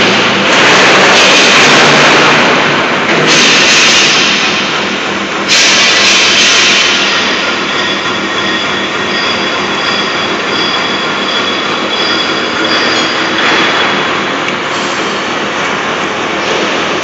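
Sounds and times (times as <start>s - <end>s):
industrial machinery grinding hiss: 0.0s - 8.2s.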